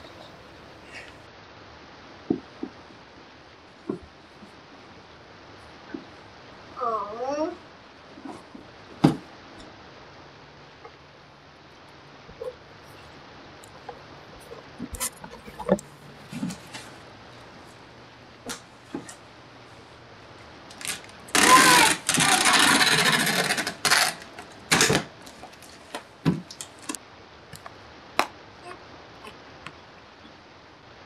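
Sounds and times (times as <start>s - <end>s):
packing tape tearing screech: 20.7s - 25.7s
tape ripping: 20.7s - 27.0s.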